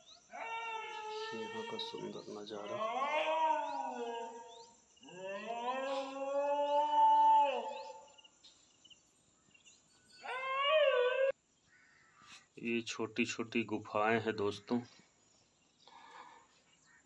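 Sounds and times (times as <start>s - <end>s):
animal long drawn-out calls: 0.3s - 8.1s.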